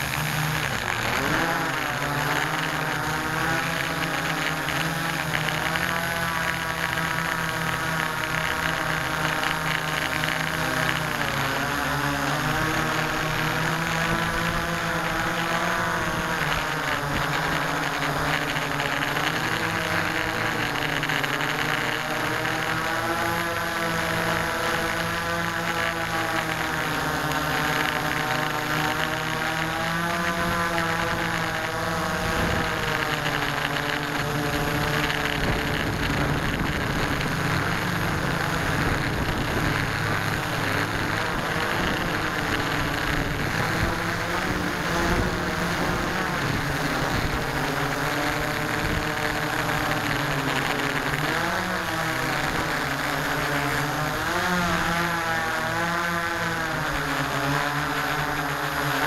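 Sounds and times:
drone motors and propellers: 0:00.0 - 0:59.0.

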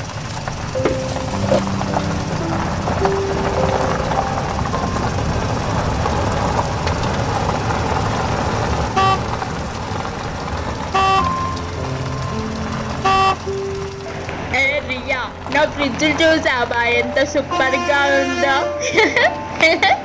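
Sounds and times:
truck engine rumble: 0:00.0 - 0:20.0
truck horn toots: 0:08.8 - 0:09.4, 0:10.9 - 0:12.2, 0:12.9 - 0:13.9, 0:17.2 - 0:18.9.

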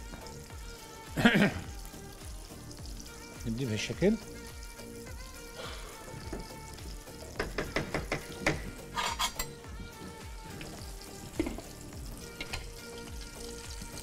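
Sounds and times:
faint frying sizzle: 0:00.0 - 0:14.0
metal spoon clinking on pot: 0:07.4 - 0:09.6.

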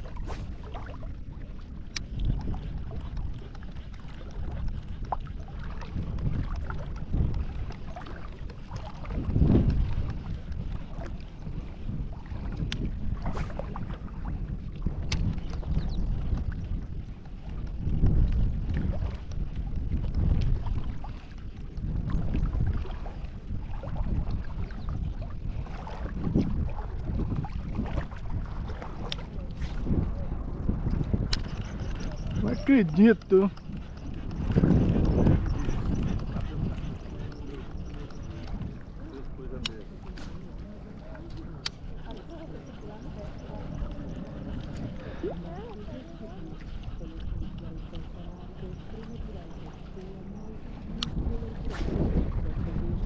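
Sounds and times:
small water splashes: 0:00.0 - 0:34.6
lake waves lapping: 0:00.0 - 0:53.0
wind buffeting microphone: 0:00.0 - 0:53.0.

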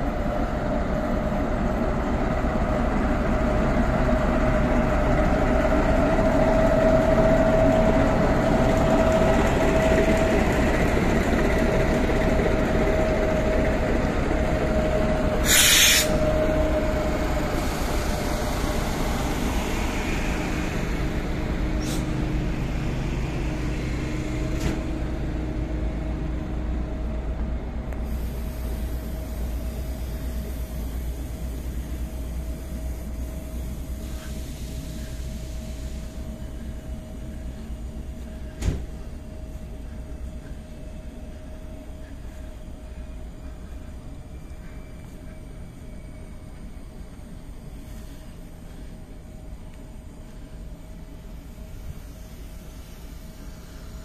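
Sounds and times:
diesel locomotive engine hum: 0:00.0 - 0:54.0
steady whine: 0:04.1 - 0:54.0
air hiss: 0:15.4 - 0:16.4, 0:21.8 - 0:22.2, 0:28.0 - 0:37.7, 0:51.0 - 0:54.0.

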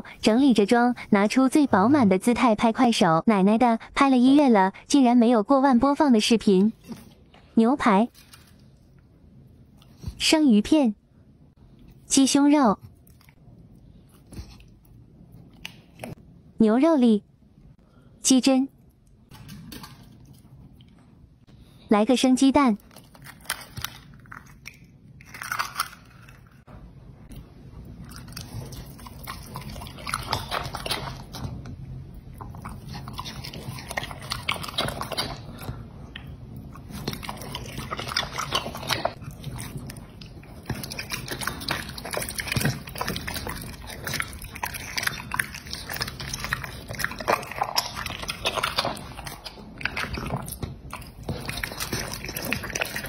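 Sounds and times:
dog chewing raw meat: 0:28.0 - 0:31.7, 0:32.3 - 0:53.0.

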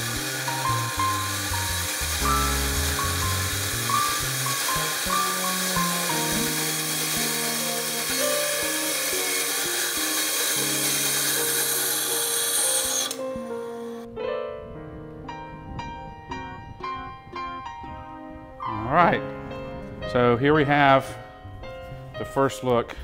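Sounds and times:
power saw cutting brass hiss: 0:00.0 - 0:13.2
background music: 0:00.0 - 0:23.0.

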